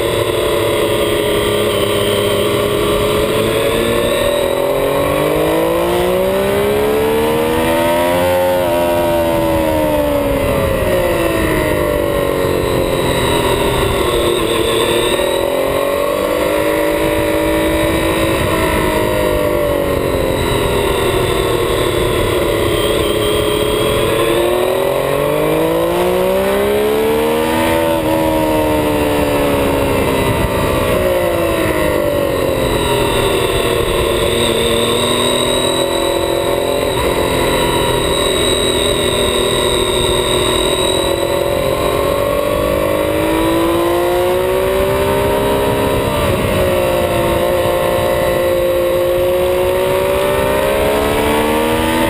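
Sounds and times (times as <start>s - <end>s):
motorcycle engine revving: 0.0s - 52.0s
wind rush: 0.0s - 52.0s.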